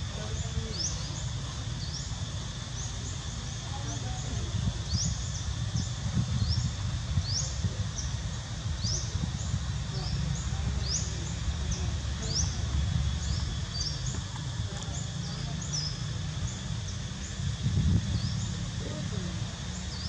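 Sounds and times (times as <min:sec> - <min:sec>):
bird chirping: 0:00.1 - 0:20.0.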